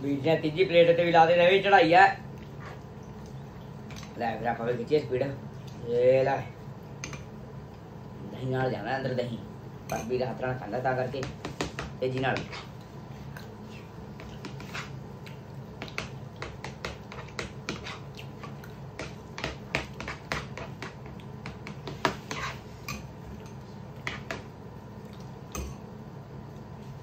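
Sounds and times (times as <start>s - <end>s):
steady low hum: 0.0s - 27.0s
chewing and lip smacking: 25.0s - 25.4s.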